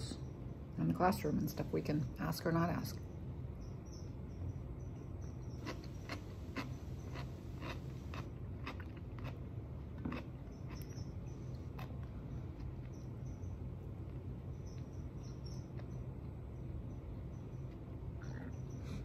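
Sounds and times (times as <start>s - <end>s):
steady low hum: 0.0s - 19.0s
person chewing crunchy food: 5.5s - 13.0s.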